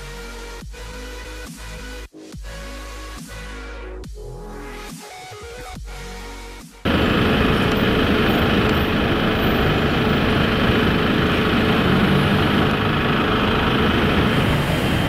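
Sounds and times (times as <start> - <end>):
city street traffic: 6.8 - 15.0.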